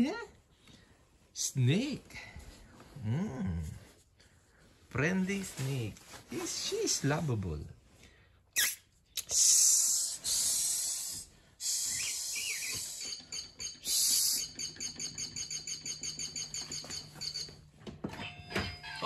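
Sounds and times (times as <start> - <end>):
person imitating snake hissing: 9.2 - 13.0, 13.8 - 14.4.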